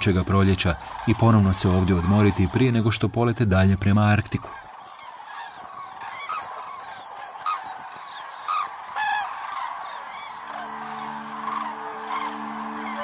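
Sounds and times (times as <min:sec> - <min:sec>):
cranes trumpeting: 0:00.0 - 0:13.0
soft music with held notes: 0:09.0 - 0:13.0.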